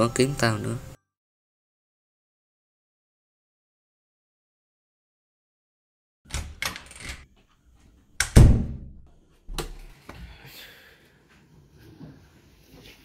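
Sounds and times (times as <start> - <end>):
knocks and thuds: 8.4 - 9.0.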